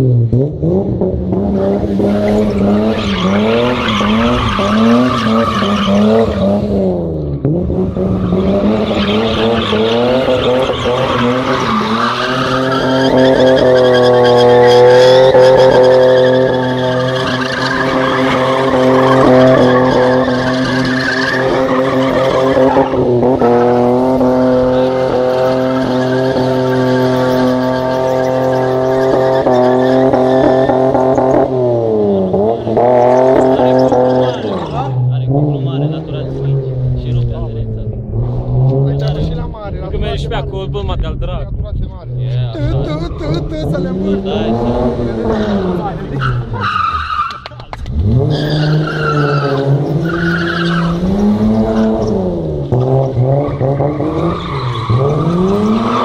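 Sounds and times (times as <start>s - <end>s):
car engine revving: 0.0s - 56.0s
tyres squealing: 8.2s - 23.8s, 42.6s - 52.2s.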